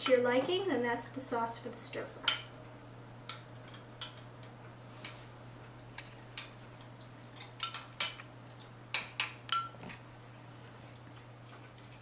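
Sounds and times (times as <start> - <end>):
metal spoon clinking in glass bowl: 9.5 - 9.8.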